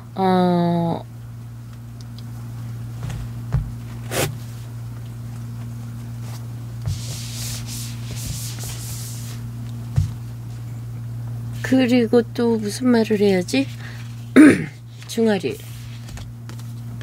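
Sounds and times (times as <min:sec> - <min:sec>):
steady low hum: 0:00.0 - 0:17.0
cloth rubbing a whiteboard: 0:04.0 - 0:04.6, 0:06.2 - 0:09.5.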